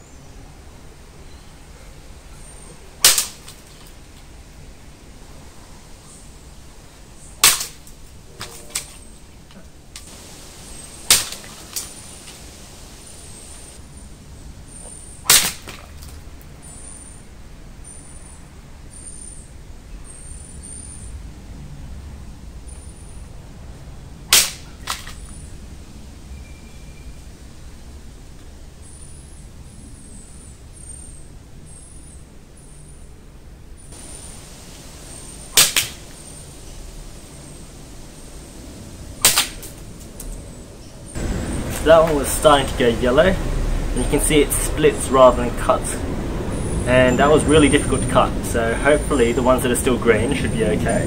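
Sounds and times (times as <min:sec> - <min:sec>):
blade cracking bamboo pole: 0:03.0 - 0:04.0, 0:07.4 - 0:09.2, 0:11.0 - 0:12.4, 0:15.2 - 0:16.2, 0:24.3 - 0:25.2, 0:35.6 - 0:36.1, 0:39.2 - 0:40.3.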